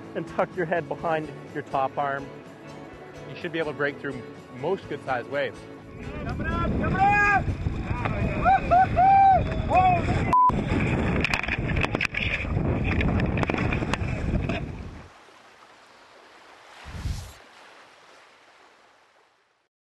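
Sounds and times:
water splashing around kayaks: 0.0s - 19.7s
wind buffeting microphone: 6.0s - 15.1s
whoosh: 16.7s - 17.5s.

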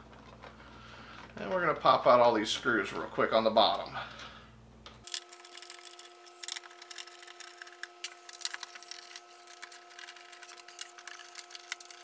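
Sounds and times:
screwdriver clicking and scraping screws: 5.0s - 12.0s.

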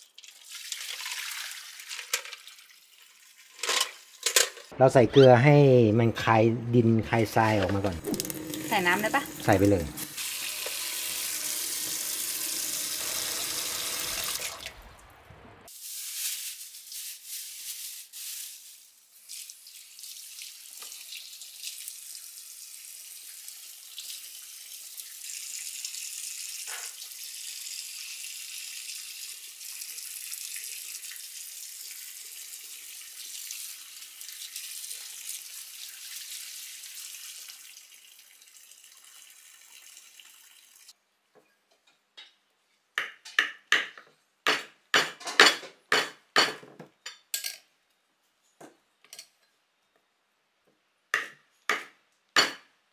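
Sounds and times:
tap water running into a pot: 0.0s - 4.2s, 7.1s - 14.8s, 19.1s - 40.9s
hissing tap water stream: 6.7s - 15.1s, 19.2s - 40.9s.

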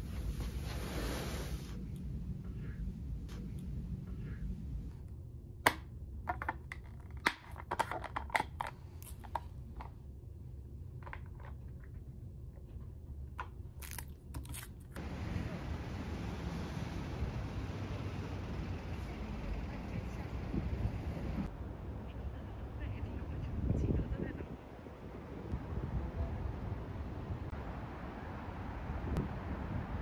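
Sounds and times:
plastic cup crinkling and crackling: 6.3s - 9.9s, 13.4s - 15.0s
street noise: 14.9s - 30.0s.

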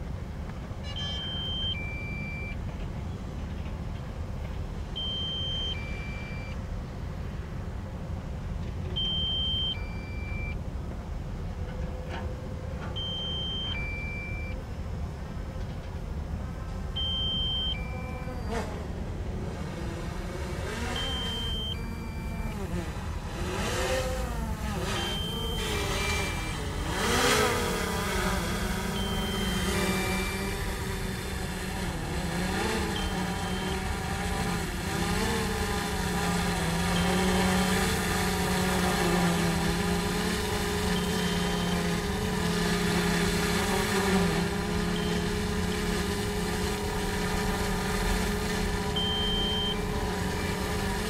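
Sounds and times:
excavators and dump trucks running: 0.0s - 51.0s
two-note electronic warning beep: 0.8s - 2.6s, 5.0s - 6.6s, 9.0s - 10.6s, 13.0s - 14.6s, 17.0s - 18.6s, 20.9s - 22.7s, 24.8s - 27.5s, 28.6s - 31.1s, 32.6s - 34.0s, 40.9s - 42.1s, 44.6s - 45.5s, 48.9s - 51.0s.

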